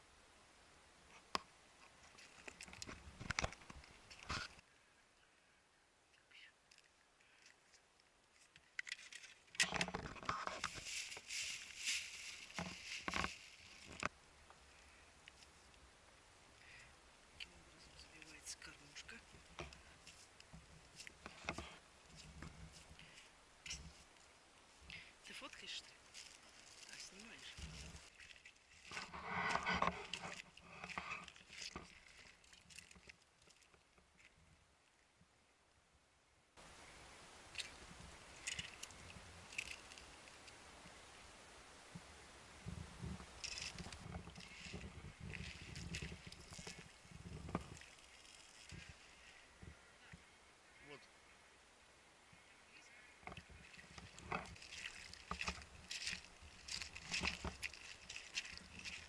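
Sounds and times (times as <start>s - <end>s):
fishing tackle rustling and clicking: 1.2s - 4.6s, 6.6s - 14.6s, 18.2s - 34.5s, 37.5s - 40.6s, 43.0s - 50.2s, 53.2s - 59.0s.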